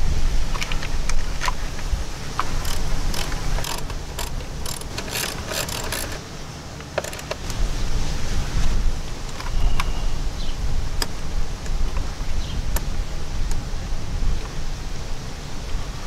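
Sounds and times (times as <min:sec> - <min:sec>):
low steady rumble: 0:00.0 - 0:16.0
metallic clicking and clatter: 0:02.4 - 0:06.2, 0:06.8 - 0:07.6.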